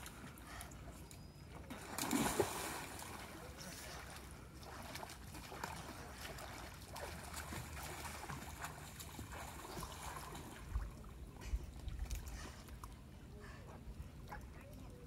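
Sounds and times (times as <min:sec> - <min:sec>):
lake water lapping and trickling: 0:00.0 - 0:15.0
small water splashes: 0:01.7 - 0:13.0.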